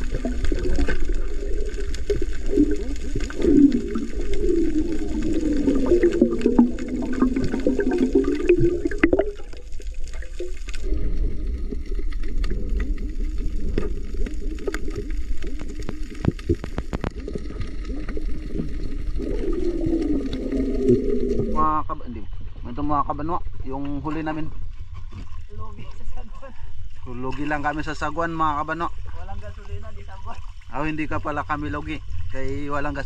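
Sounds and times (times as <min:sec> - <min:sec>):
muffled underwater rushing: 0:00.0 - 0:22.8
sharp underwater clicks: 0:11.9 - 0:21.5.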